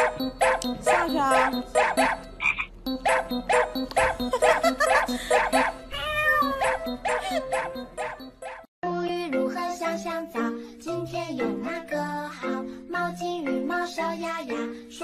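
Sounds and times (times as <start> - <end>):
background music with quick beat: 0.0 - 8.6.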